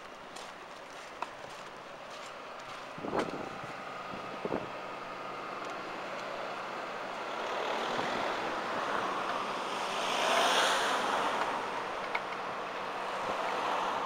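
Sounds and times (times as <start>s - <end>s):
road traffic passing: 0.0s - 14.0s
vehicle passing by: 7.3s - 11.8s.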